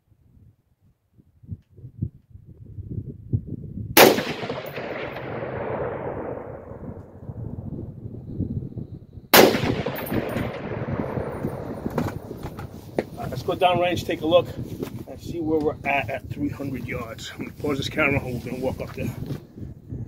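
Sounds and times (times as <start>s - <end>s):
rifle shots with echo: 4.0s - 7.3s, 9.3s - 12.8s.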